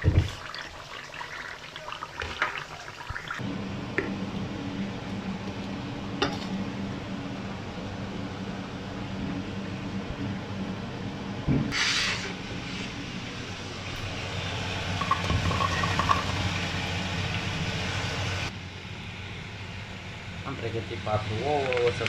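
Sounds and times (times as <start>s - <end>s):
low hum: 3.4s - 11.7s
short hiss: 11.7s - 12.4s
food sizzling in hot oil: 14.6s - 18.5s.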